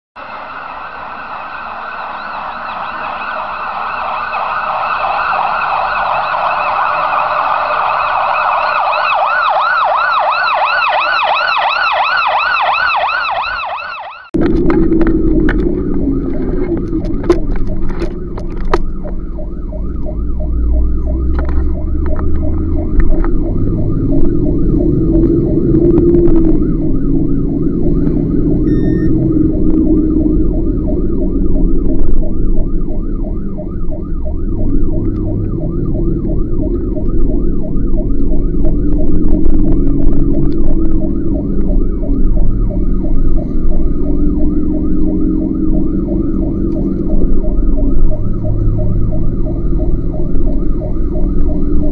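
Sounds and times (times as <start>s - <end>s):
fire engine siren: 0.2s - 51.9s
truck engine droning: 14.2s - 51.9s.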